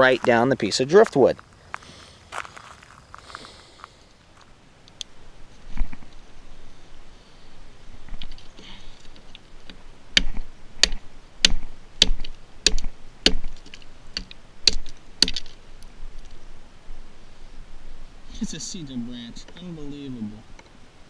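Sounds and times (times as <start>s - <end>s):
hatchet chopping wood: 10.2s - 13.6s, 14.2s - 15.5s.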